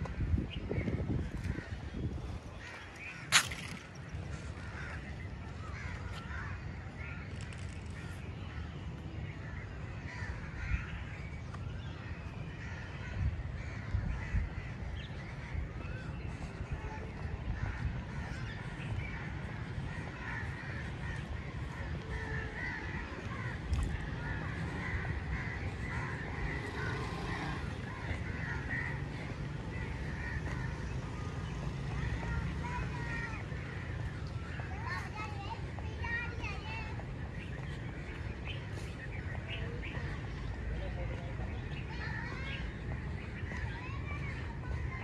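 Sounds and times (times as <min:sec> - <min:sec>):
birds calling: 0:17.6 - 0:45.0.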